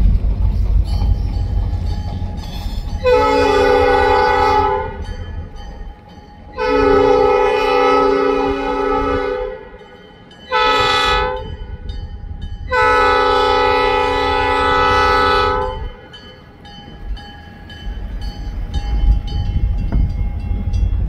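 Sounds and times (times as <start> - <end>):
locomotive engine rumble: 0.0 - 21.0
locomotive air horn blasts: 3.0 - 5.1, 6.6 - 9.8, 10.5 - 11.6, 12.7 - 16.1.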